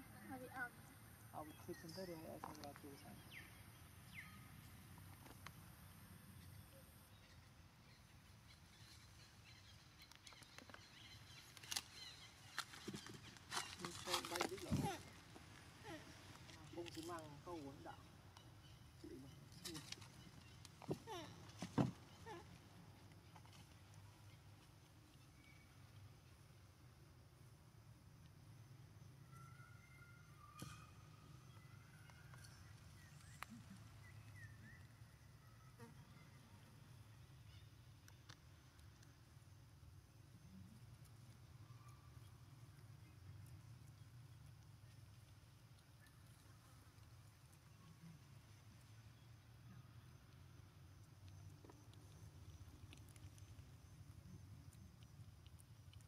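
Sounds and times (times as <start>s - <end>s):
faint chirps: 28.2s - 56.0s.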